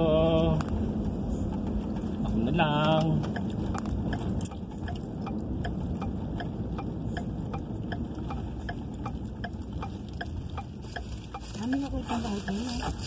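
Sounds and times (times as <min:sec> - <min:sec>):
car engine and tyre rumble: 0:00.0 - 0:13.0
turn-signal indicator ticking: 0:02.8 - 0:13.0.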